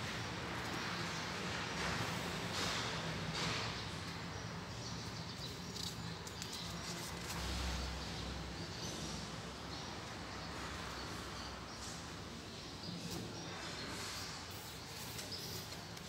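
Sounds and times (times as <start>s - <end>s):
book pages flipping: 5.7s - 7.8s.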